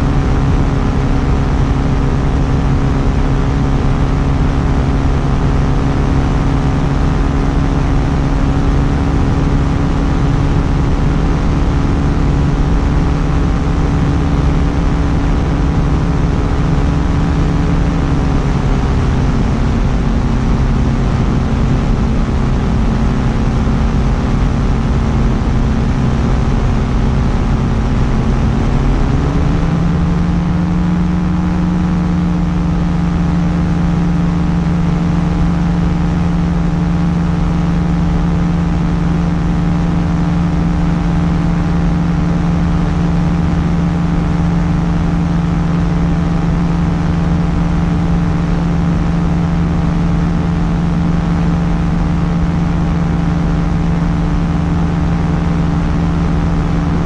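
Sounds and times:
light aircraft engine and propeller: 0.0 - 57.0.

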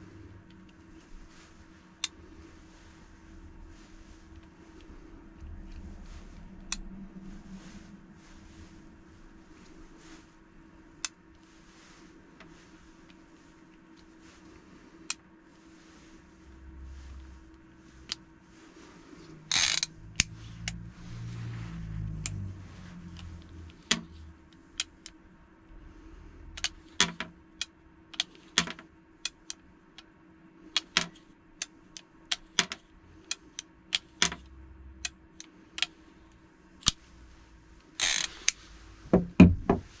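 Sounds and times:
rustles: 0.0 - 25.4.

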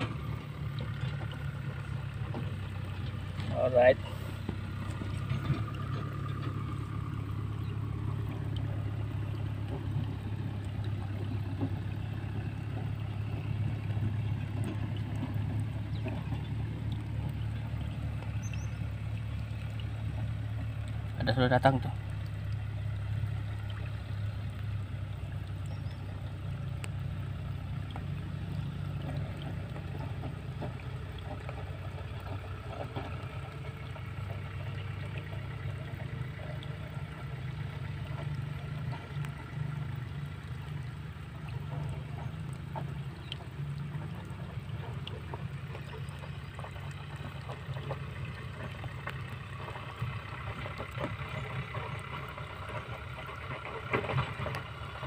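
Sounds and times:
low droning hum: 0.0 - 55.0
faint clicks: 26.6 - 27.0.

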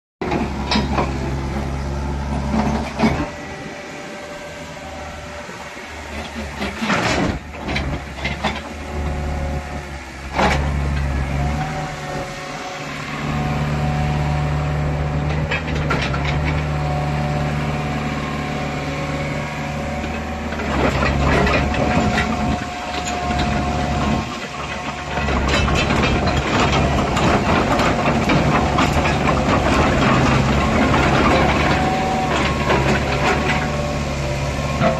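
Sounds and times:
excavator diesel engine running: 0.2 - 34.9
thin steady whine: 0.8 - 6.7.

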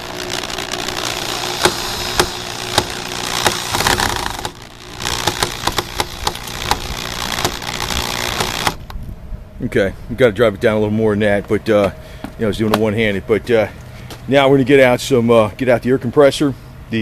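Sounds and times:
cordless drill driving screw: 0.0 - 8.9
sharp drill clicks: 0.0 - 8.9.

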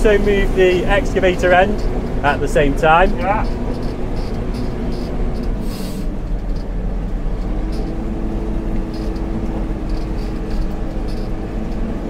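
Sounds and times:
diesel engine running: 0.0 - 12.0
steady whine: 0.0 - 12.0
brief hiss: 5.6 - 6.1.

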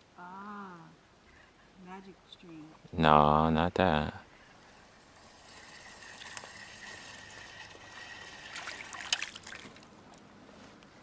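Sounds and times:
water trickling: 4.9 - 9.9
fish splashing in water: 5.4 - 9.9.

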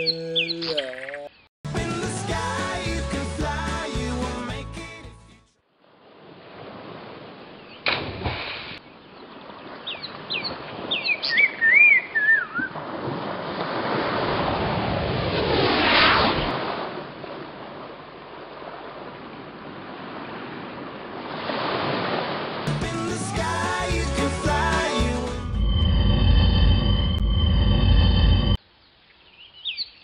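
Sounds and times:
whistling chirps: 11.3 - 12.7.

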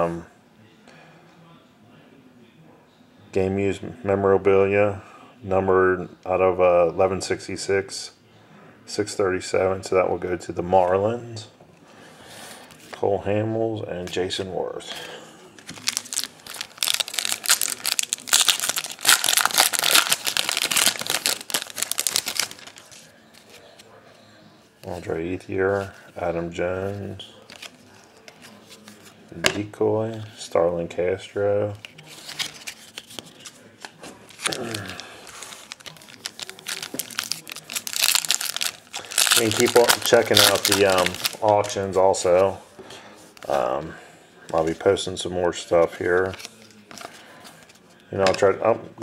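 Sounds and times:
foil wrapper tearing and crinkling: 15.7 - 23.1, 34.3 - 41.8.

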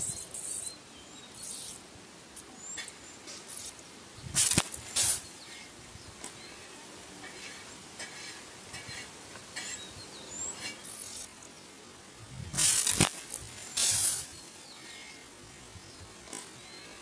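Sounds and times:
faint bird or insect chirps: 0.0 - 17.0
compressed air rushing: 3.5 - 5.6, 12.2 - 14.5
sharp pop: 4.3 - 5.2.

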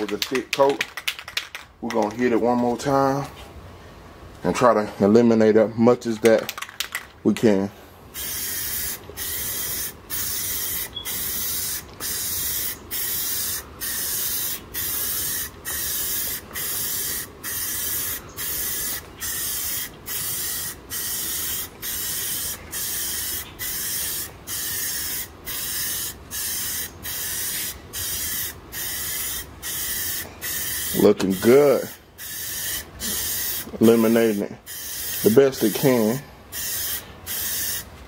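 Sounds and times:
aerosol spray paint hissing: 8.1 - 37.9.

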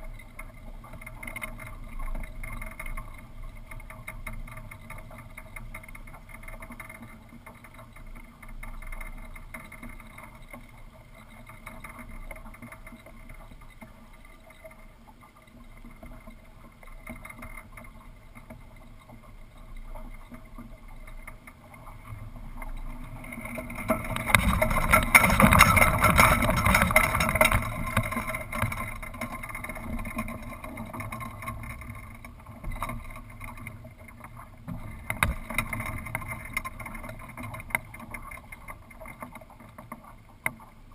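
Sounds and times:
sail rattling: 19.9 - 40.9.

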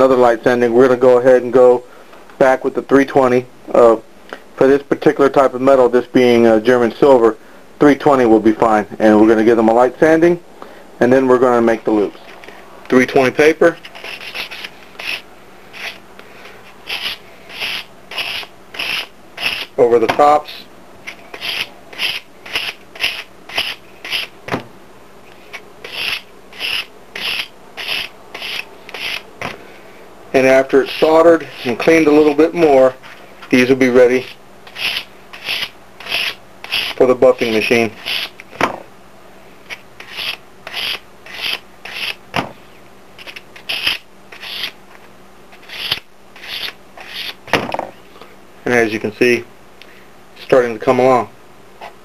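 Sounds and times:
sandpaper rubbing on metal: 13.9 - 16.0, 16.8 - 19.8, 21.1 - 24.3, 25.8 - 29.2, 34.2 - 38.3, 39.7 - 42.2, 43.2 - 44.8, 45.6 - 47.4.

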